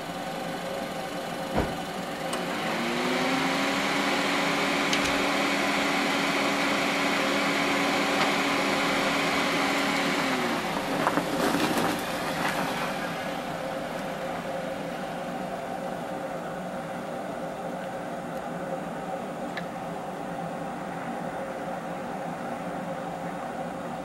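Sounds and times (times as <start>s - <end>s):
car engine running: 0.0s - 17.5s
dull thump: 1.5s - 1.8s.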